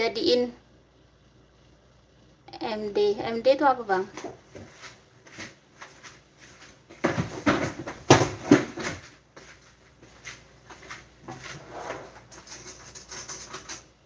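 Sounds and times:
rustling and clatter: 4.2 - 13.9.

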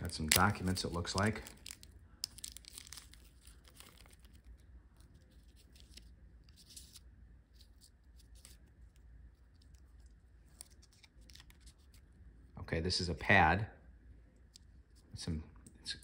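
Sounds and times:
plastic wrapper rustling: 0.0 - 12.1
light crinkles: 0.0 - 12.5.

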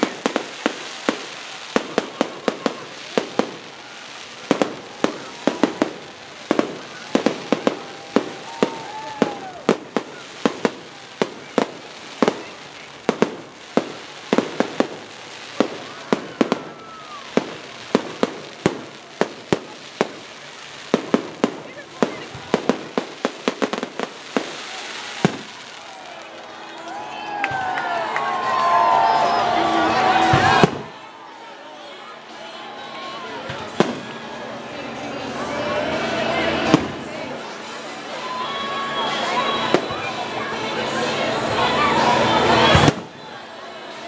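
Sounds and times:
fireworks pops and bangs: 0.0 - 26.8, 30.2 - 31.0, 33.4 - 34.2, 36.6 - 37.1, 42.7 - 43.3.

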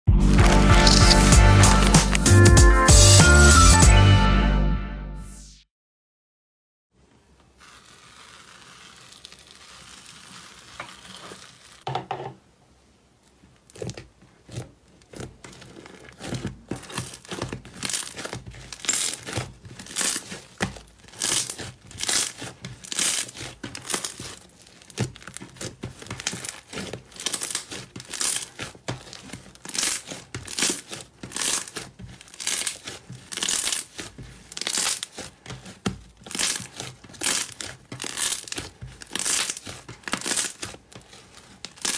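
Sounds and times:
slime crackling and squishing: 0.3 - 2.4, 7.6 - 11.9, 13.5 - 41.9.

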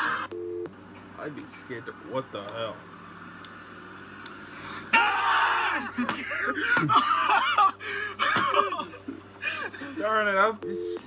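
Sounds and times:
man laughing: 5.0 - 10.1.

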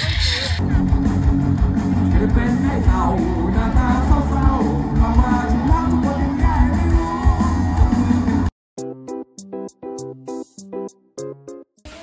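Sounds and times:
live band music with pulsing bass: 0.0 - 12.0
person singing: 2.1 - 8.5.

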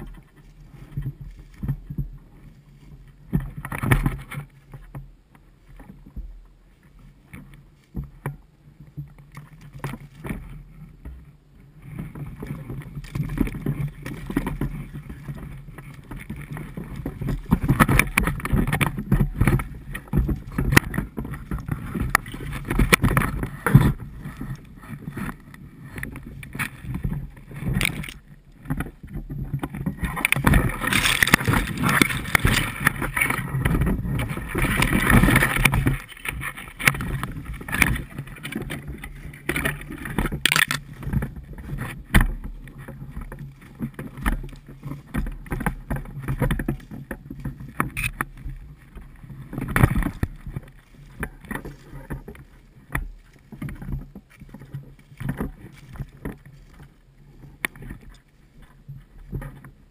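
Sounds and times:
branches rustling against camera: 0.0 - 59.8
footsteps through dry grass: 30.0 - 39.2.

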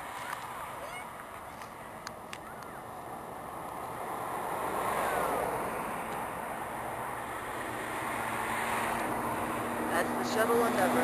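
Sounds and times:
jet aircraft flying past: 2.7 - 11.0.

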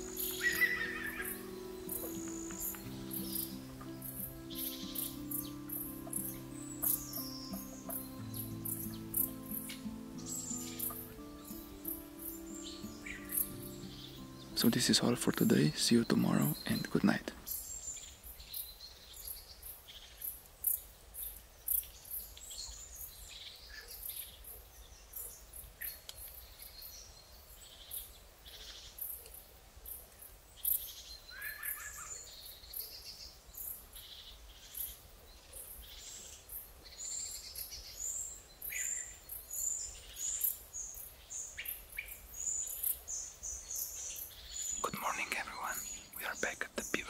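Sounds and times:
bird repeating a high note: 0.0 - 17.3
songbirds chirping and trilling: 0.0 - 29.5, 30.3 - 47.0.

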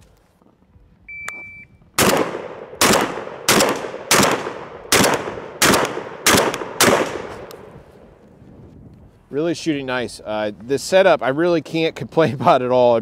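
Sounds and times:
shotgun shots with echo: 2.0 - 7.7.

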